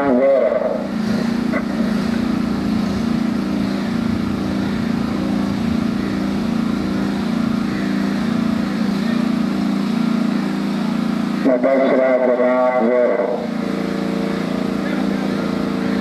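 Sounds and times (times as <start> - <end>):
vehicle engine running: 0.0 - 16.0.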